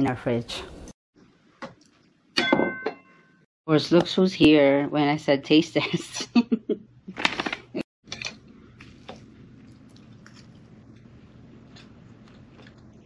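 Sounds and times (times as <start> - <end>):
person chewing: 8.1 - 13.0.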